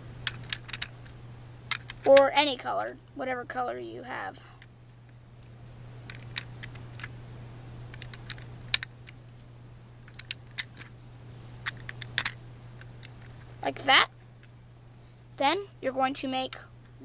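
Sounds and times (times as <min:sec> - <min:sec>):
plastic bricks clicking and clattering: 0:00.2 - 0:00.9.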